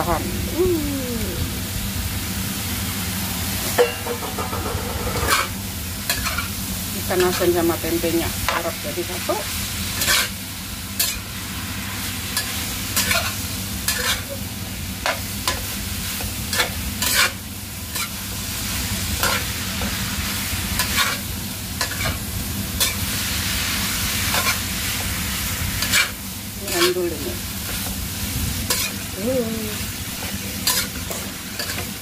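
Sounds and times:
food sizzling in a wok: 0.0 - 32.0
metal spatula scraping a pan: 10.0 - 10.3, 12.4 - 14.3, 16.5 - 18.1, 30.2 - 31.9.

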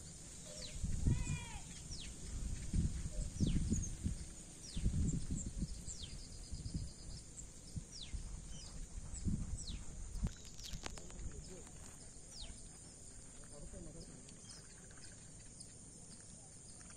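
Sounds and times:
steady high hiss: 0.0 - 16.9
wind buffeting microphone: 0.6 - 12.5.

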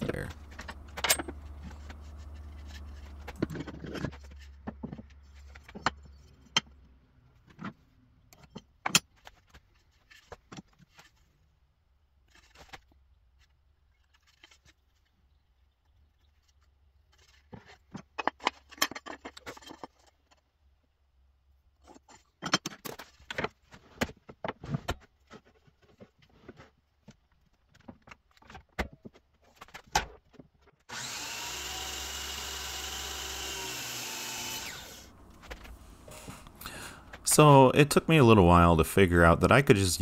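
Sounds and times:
metal tools clinking and knocking: 0.5 - 4.9.

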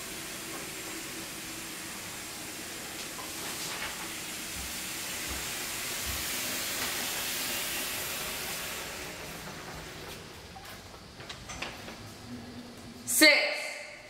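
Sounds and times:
water running into a bath: 0.0 - 9.4.

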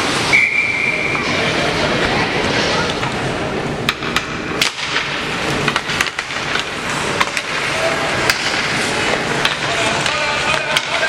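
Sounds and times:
hockey sticks clacking on puck: 3.8 - 11.0
skates on ice: 4.1 - 11.0.

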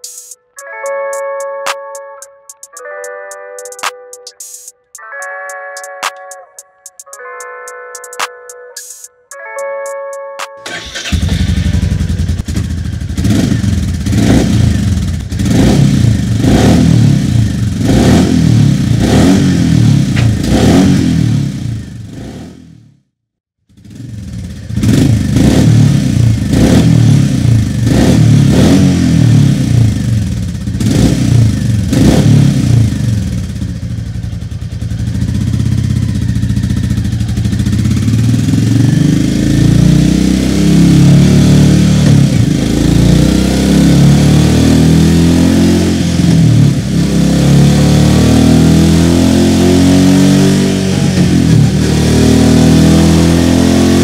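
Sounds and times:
motorcycle engine revving: 10.6 - 23.0, 23.7 - 54.0.

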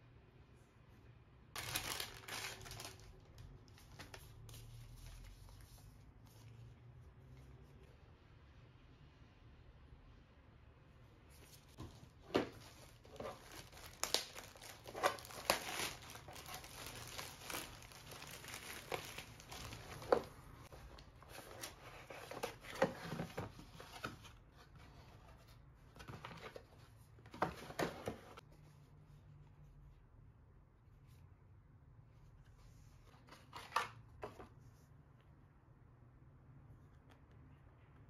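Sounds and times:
packaging crinkling and rustling: 1.6 - 5.6, 11.7 - 24.2.

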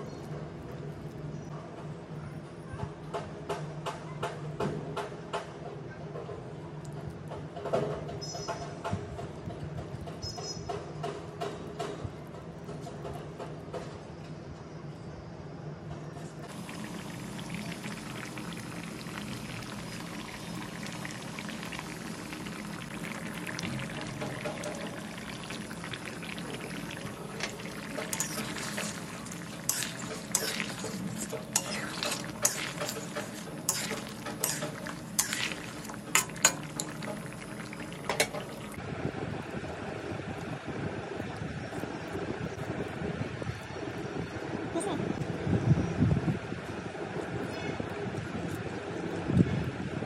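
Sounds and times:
meat sizzling in a pan: 16.5 - 38.8
stirring clicks and knocks: 16.5 - 38.8.

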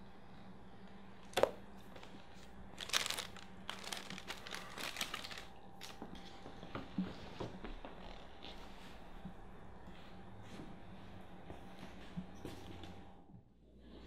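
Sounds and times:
faint steady hum: 0.0 - 14.0
bedding rustling: 2.8 - 5.5.

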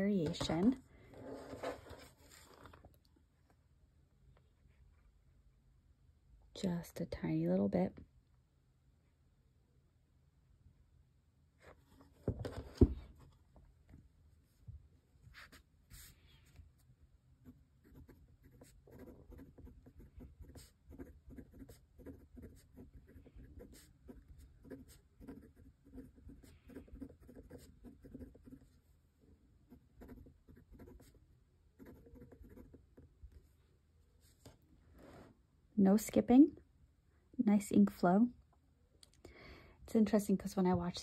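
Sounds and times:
fountain pen scratching on paper: 17.4 - 28.8, 29.7 - 31.2, 31.8 - 33.1.

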